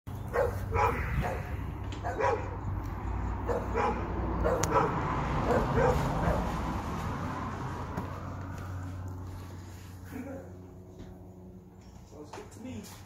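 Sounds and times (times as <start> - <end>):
dog barking sharply: 0.3 - 2.6, 3.5 - 6.4.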